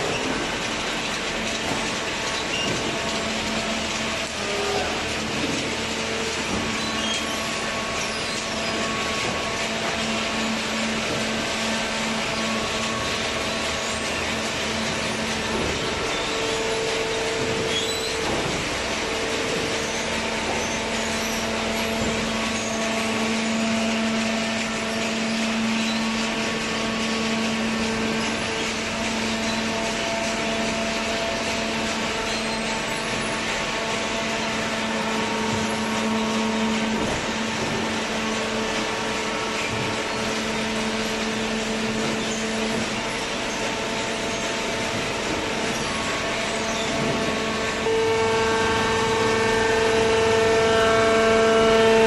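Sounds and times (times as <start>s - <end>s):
baler machine humming: 0.0s - 52.0s.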